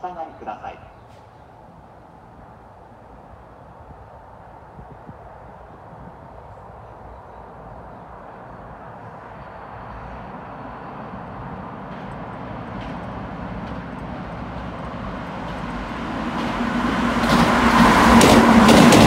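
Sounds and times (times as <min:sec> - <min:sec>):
steady train hum: 0:00.0 - 0:19.0
train wheels rumbling on rails: 0:09.6 - 0:19.0
rail clacks: 0:11.2 - 0:19.0.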